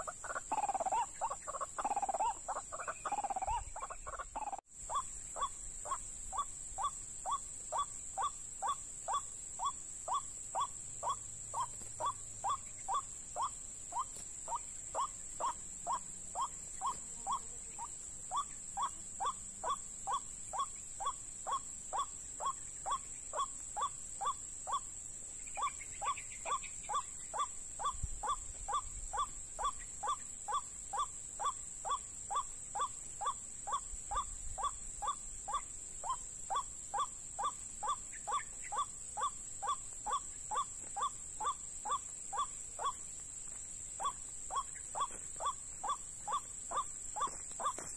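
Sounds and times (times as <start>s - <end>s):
waterhen calling: 0.0s - 6.5s.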